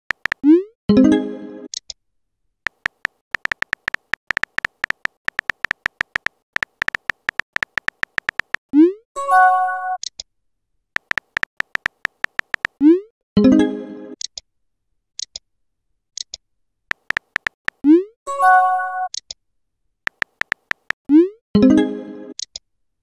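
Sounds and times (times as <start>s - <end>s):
keyboard tap clicks: 0.1s - 0.4s, 2.7s - 8.6s, 11.0s - 12.8s, 16.9s - 17.8s, 20.1s - 21.0s.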